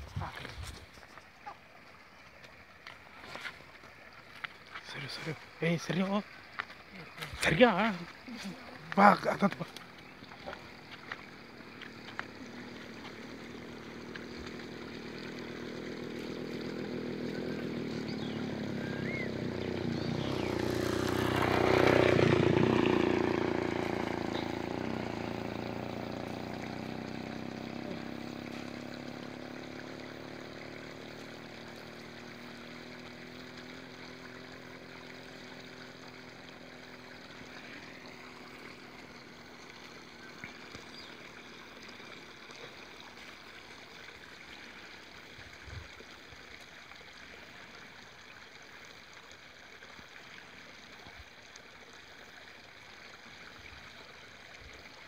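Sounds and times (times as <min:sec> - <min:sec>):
vehicle engine passing by: 0:09.0 - 0:41.0.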